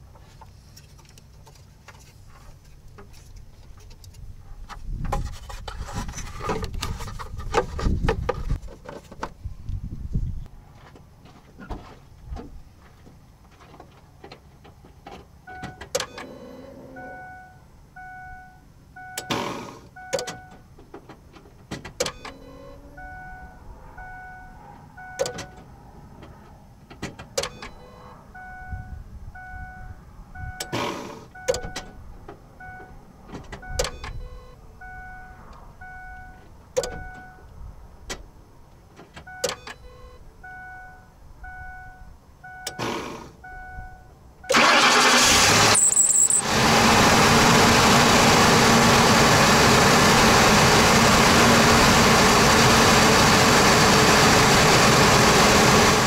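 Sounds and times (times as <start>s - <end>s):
van warning chime beeping: 15.4s - 20.7s, 22.0s - 25.7s, 27.4s - 37.5s, 39.2s - 42.8s, 43.4s - 46.5s.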